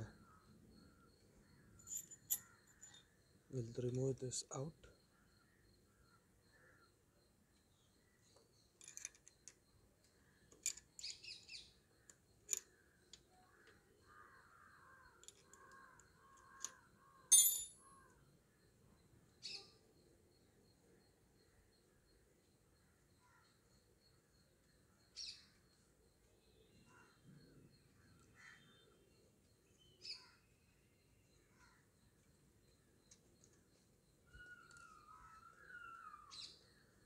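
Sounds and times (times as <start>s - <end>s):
metallic clicks and clinks: 1.8s - 3.0s, 8.7s - 9.6s, 10.5s - 11.2s, 15.2s - 15.6s, 16.6s - 17.8s
bird calling: 34.3s - 36.7s.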